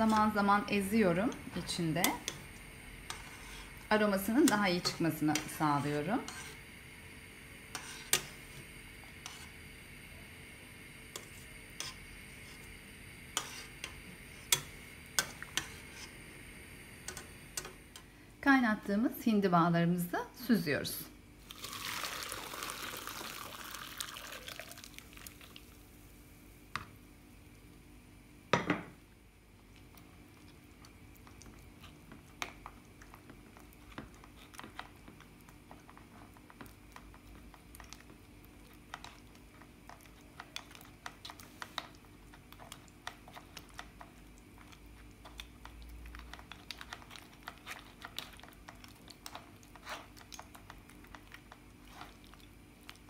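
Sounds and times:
metal spoon scraping a strainer: 3.1 - 3.7, 4.5 - 6.6, 7.7 - 8.4
liquid pouring and splashing: 21.4 - 25.8.

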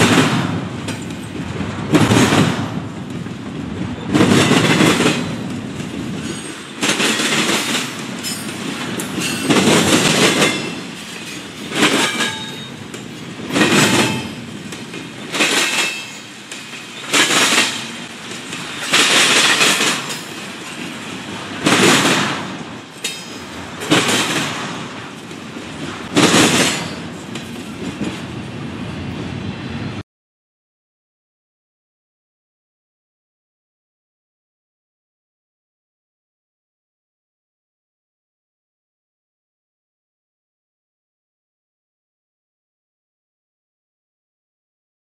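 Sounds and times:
train wheels clattering on rails: 0.0 - 29.3.

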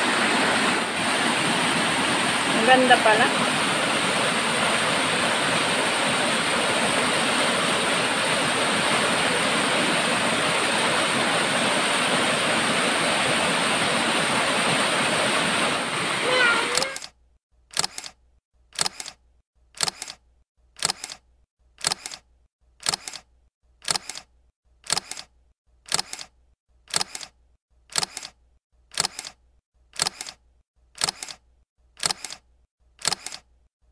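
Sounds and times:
camera shutter double click: 32.0 - 32.4, 33.0 - 33.5.

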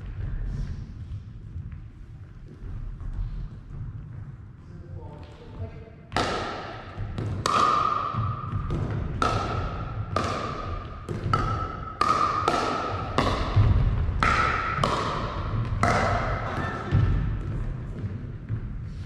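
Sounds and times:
ball bouncing on wooden floor: 0.0 - 19.0
paddles hitting plastic ball: 6.1 - 18.8.

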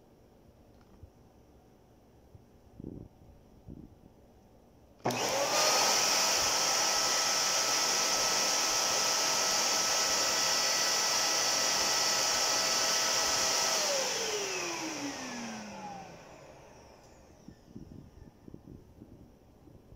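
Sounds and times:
vacuum cleaner motor whining: 5.0 - 17.8.

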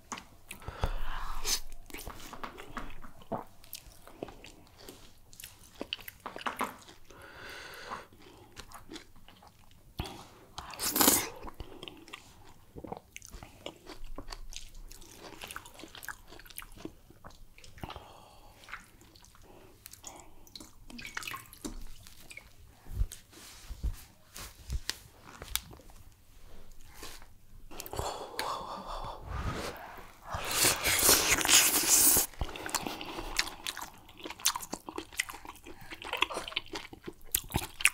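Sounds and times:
mouth chewing sounds: 0.0 - 7.2, 7.9 - 22.6, 29.8 - 37.9
fingers squishing through soup: 30.2 - 37.9.

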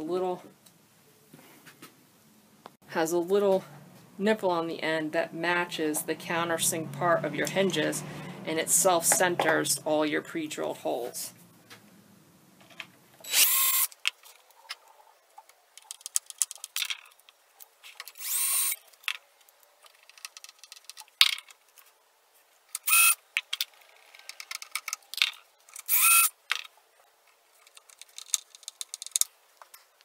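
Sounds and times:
cordless drill bursts: 13.2 - 13.9, 18.2 - 18.8, 22.8 - 23.2, 25.9 - 26.3
handling clicks and rattles: 15.4 - 18.2, 26.5 - 29.8.

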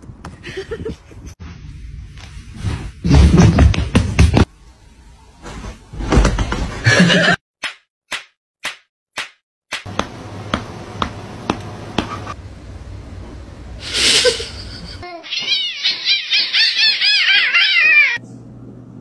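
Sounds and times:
sharp slaps: 7.6 - 10.2
cats yowling: 15.2 - 18.2.

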